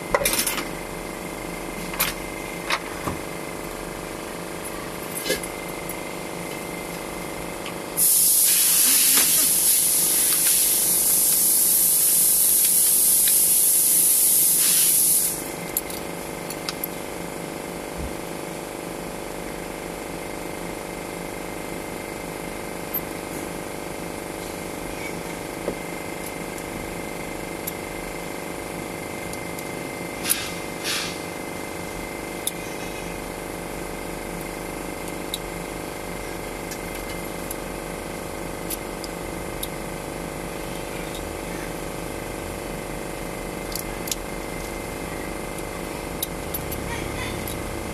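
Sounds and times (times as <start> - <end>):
pressurised spray hissing: 8.0 - 15.4, 30.3 - 31.3.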